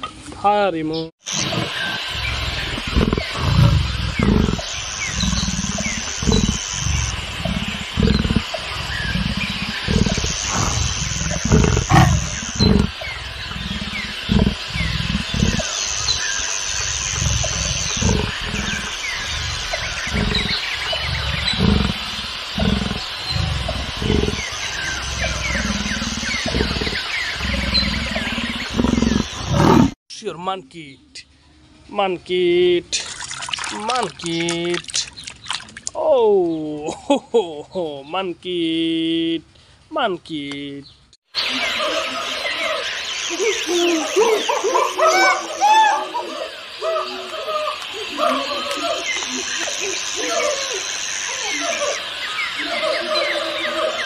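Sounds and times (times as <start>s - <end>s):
birds chirping: 0.3s - 30.0s, 33.4s - 54.0s
leopard grunting and growling: 1.3s - 30.0s.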